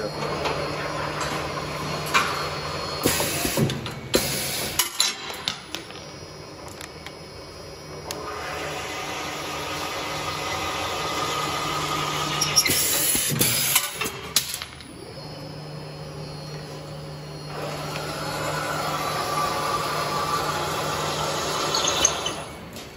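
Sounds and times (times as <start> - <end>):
tapping machine hum and cutting: 8.0 - 22.8.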